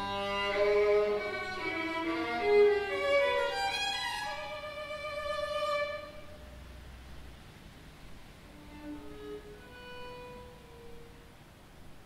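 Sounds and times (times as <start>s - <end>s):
violin playing slow melody: 0.0s - 6.7s, 8.5s - 11.4s.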